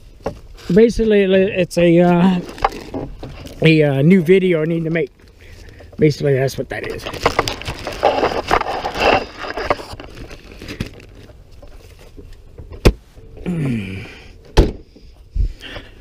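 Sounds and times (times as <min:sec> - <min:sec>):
rustling and knocks of gear: 0:02.1 - 0:13.2
car doors thumping shut: 0:14.6 - 0:14.9.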